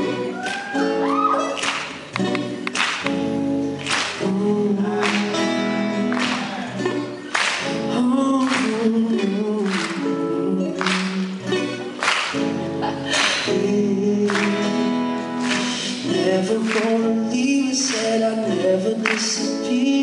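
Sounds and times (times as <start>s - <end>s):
acoustic guitar: 0.0s - 20.0s
man singing: 4.0s - 11.9s, 12.8s - 20.0s.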